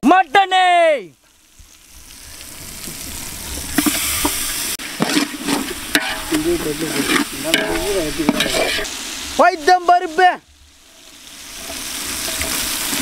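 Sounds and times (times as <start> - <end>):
meat sizzling in a pot: 0.9 - 13.0
spoon knocking and scraping pot: 5.0 - 8.9.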